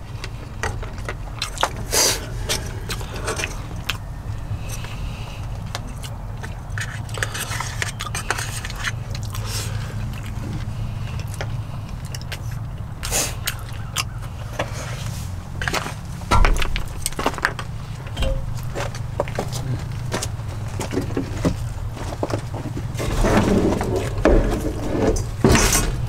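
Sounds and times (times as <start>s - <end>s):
steady low hum: 0.0s - 26.0s
plastic spoon scraping container: 6.7s - 9.7s.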